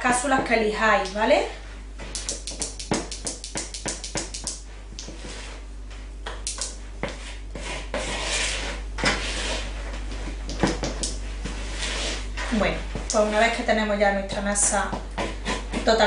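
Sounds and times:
spatula stirring batter in bowl: 0:07.0 - 0:12.6.

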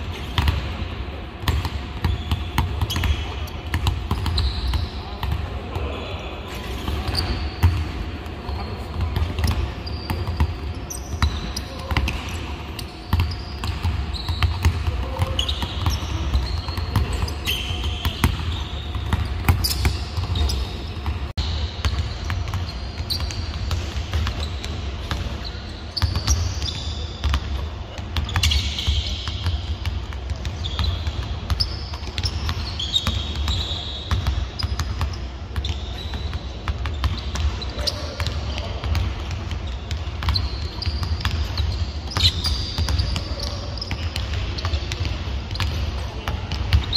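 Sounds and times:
sneakers squeaking on floor: 0:00.0 - 0:46.9
basketballs bouncing on hardwood: 0:01.4 - 0:05.4, 0:13.1 - 0:17.3, 0:29.2 - 0:46.9.

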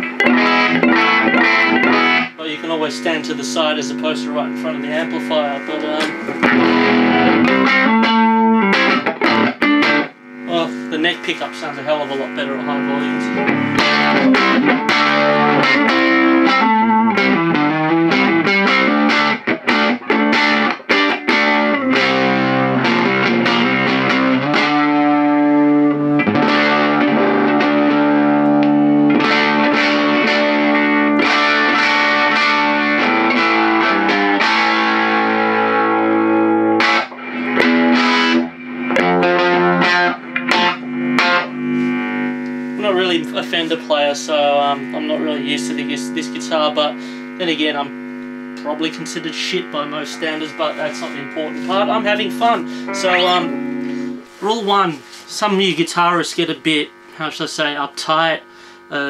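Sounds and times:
distorted electric guitar: 0:00.0 - 0:59.0.

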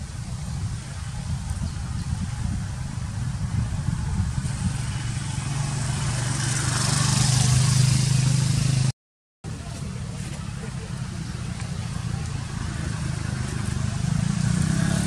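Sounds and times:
road hiss: 0:00.0 - 0:08.9
vehicle engine running: 0:09.5 - 0:15.0.

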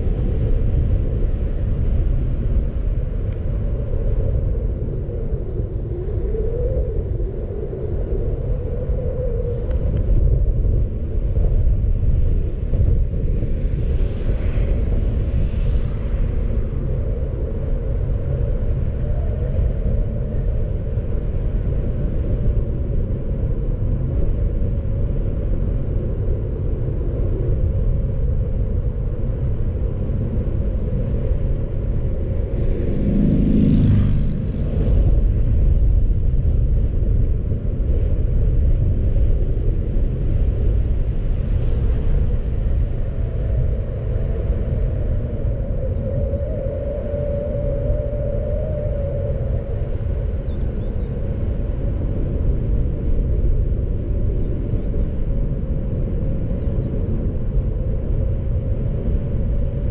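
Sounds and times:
car road and engine rumble: 0:27.2 - 0:45.5.

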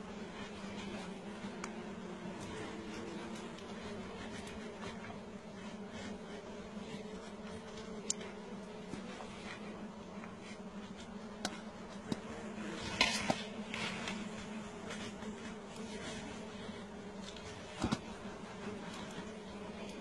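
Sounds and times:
bees buzzing: 0:00.0 - 0:20.0.

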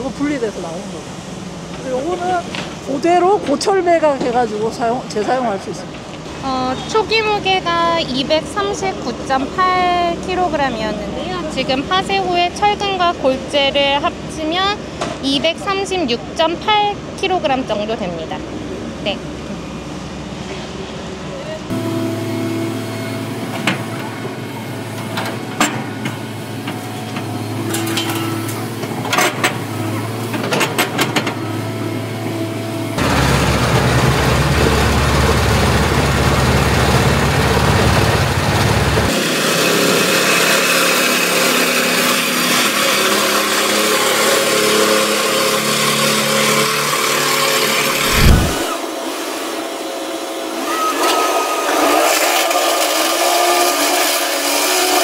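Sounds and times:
excavator engine and crusher: 0:47.8 - 0:48.8
heavy thump: 0:48.1 - 0:48.8.

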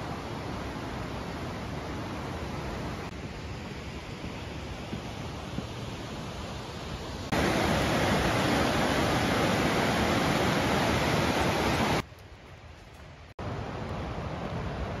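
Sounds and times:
whitewater rushing: 0:06.8 - 0:12.0.

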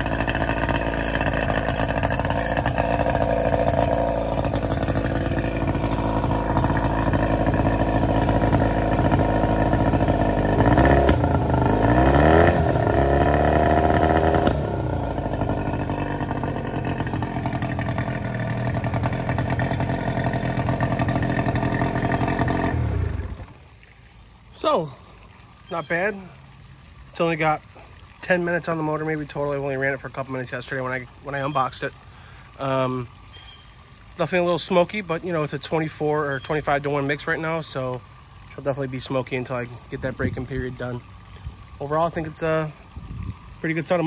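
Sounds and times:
outboard motor running: 0:00.0 - 0:44.0.

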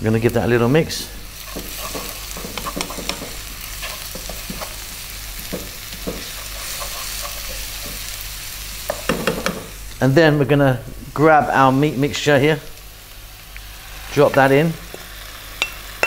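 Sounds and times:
onions sizzling in a wok: 0:00.0 - 0:16.0
wooden spoon scraping a pan: 0:01.4 - 0:08.2.

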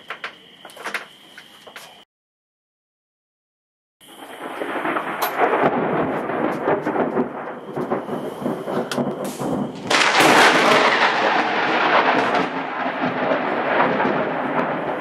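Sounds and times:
thunder rumbling and crackling: 0:04.0 - 0:15.0.

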